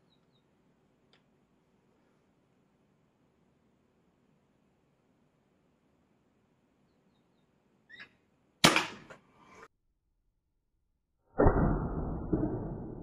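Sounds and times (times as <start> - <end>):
air rifle firing crack: 8.6 - 9.1.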